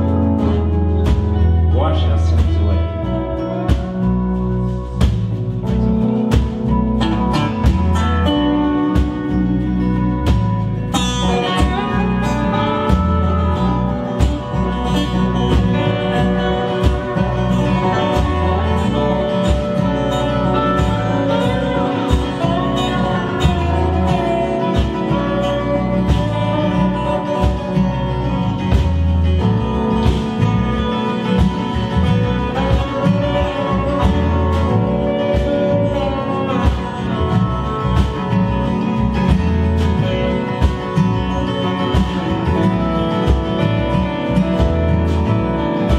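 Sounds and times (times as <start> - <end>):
acoustic guitar: 0.0 - 45.9
bass: 0.0 - 45.9
drums keeping a steady beat: 0.0 - 45.9
keyboard: 0.0 - 45.9
lap slide guitar: 0.0 - 45.9.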